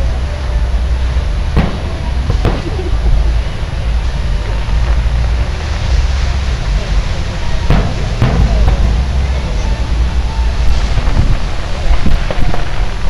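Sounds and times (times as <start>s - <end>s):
constant low rumble: 0.0s - 13.0s
firework shells bursting: 1.2s - 3.2s, 7.5s - 13.0s.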